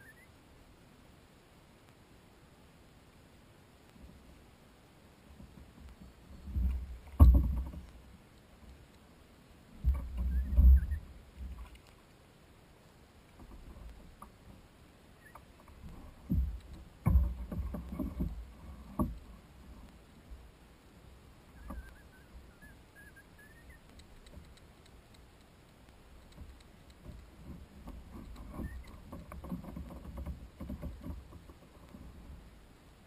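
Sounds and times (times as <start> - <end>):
knocks on kayak hull: 6.6 - 7.8.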